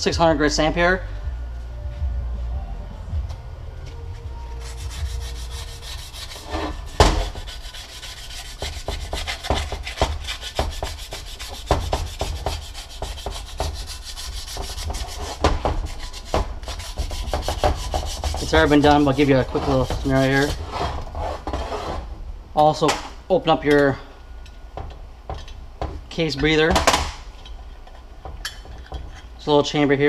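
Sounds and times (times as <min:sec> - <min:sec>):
sandpaper rubbing on metal: 0:04.5 - 0:22.0.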